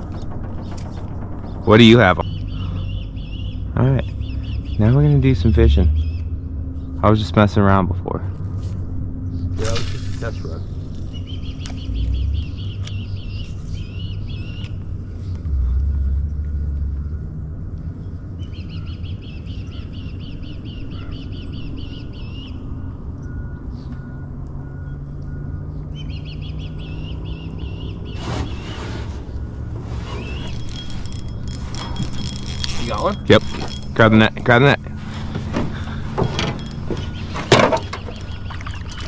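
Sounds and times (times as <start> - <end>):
steady low rumble: 0.0 - 39.0
songbird trilling: 18.4 - 28.2, 36.6 - 39.0.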